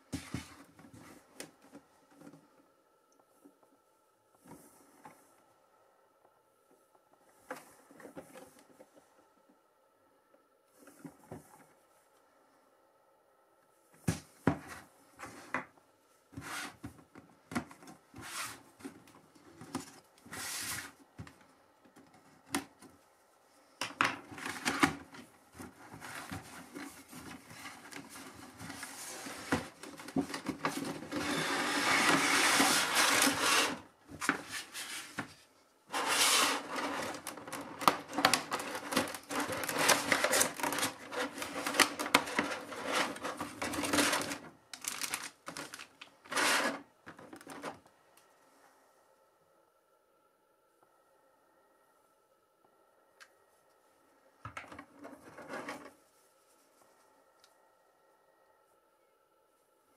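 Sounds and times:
packaging sliding and rubbing: 25.9s - 35.2s, 35.9s - 47.7s
plastic tray crackling: 36.0s - 47.8s.

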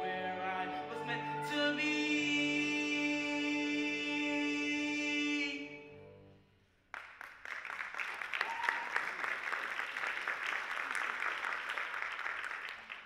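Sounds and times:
audience applause: 6.9s - 13.0s.

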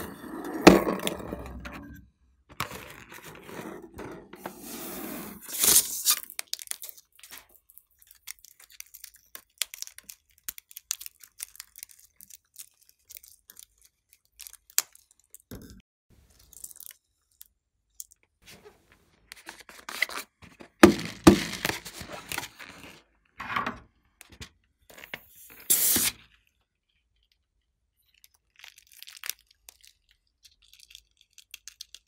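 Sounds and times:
air hissing from balloon: 25.6s - 26.1s.

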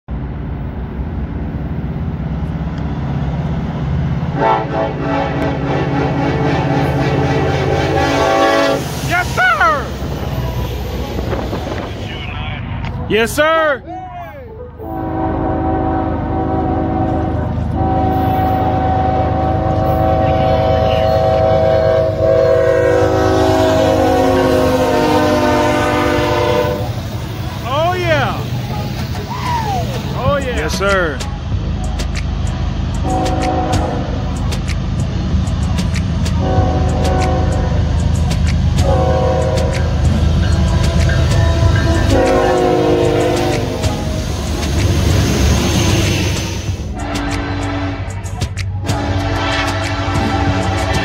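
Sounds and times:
diesel locomotive rumble: 0.1s - 51.0s
train air horn: 4.3s - 9.1s, 14.8s - 27.0s, 33.0s - 34.2s, 36.4s - 37.8s, 38.8s - 39.9s, 41.2s - 43.9s, 46.9s - 48.2s, 48.8s - 51.0s.

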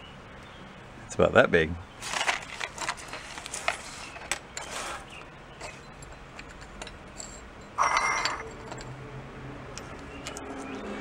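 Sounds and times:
plastic bag rustling: 2.0s - 5.8s
small metal parts clinking: 2.1s - 9.0s, 9.7s - 10.8s.

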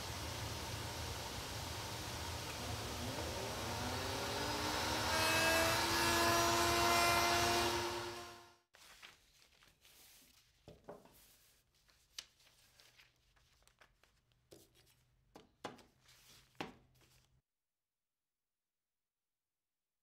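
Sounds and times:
paper rustling: 8.7s - 17.4s.

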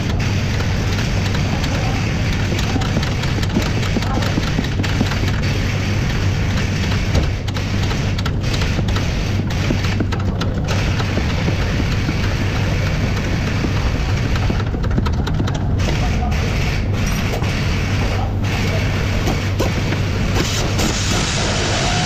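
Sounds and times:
loud workshop hum: 0.0s - 22.0s.

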